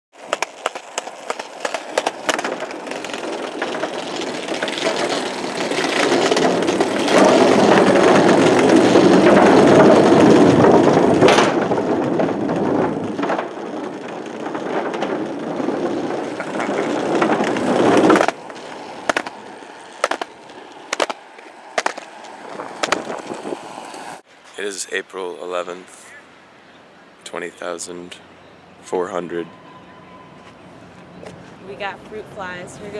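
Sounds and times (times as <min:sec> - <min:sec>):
skateboard wheels clicking over seams: 0:00.1 - 0:24.2
skateboard wheels rolling on pavement: 0:00.1 - 0:32.9.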